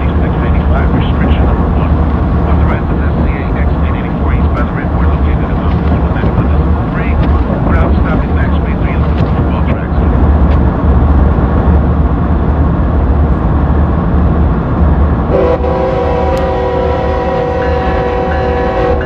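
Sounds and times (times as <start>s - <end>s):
locomotive engine rumble: 0.0s - 19.0s
locomotive horn blast: 15.3s - 19.0s.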